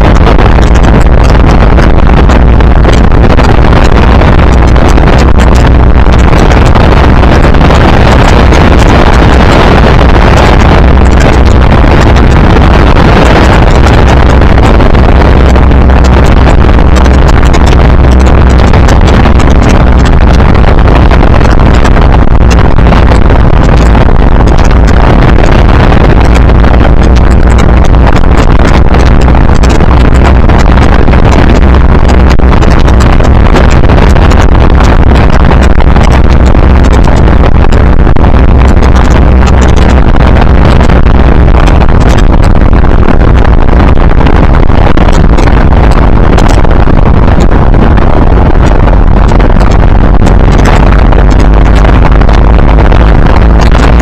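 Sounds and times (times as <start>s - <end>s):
car engine running: 0.0s - 54.0s
wind buffeting microphone: 0.0s - 54.0s.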